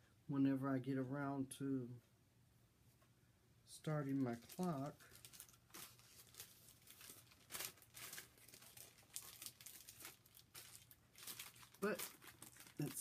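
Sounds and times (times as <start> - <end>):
plastic sleeve crinkling: 3.9 - 13.0.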